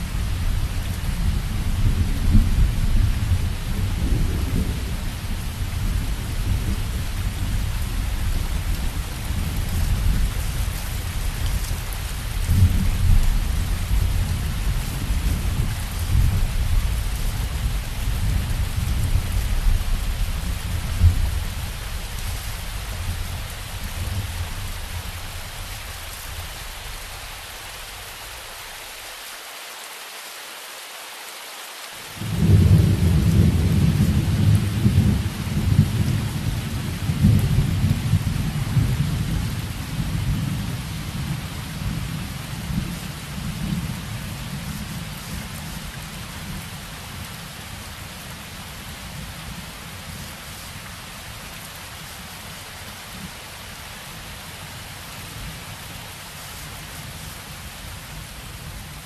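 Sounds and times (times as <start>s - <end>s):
steady rain: 0.0s - 59.0s.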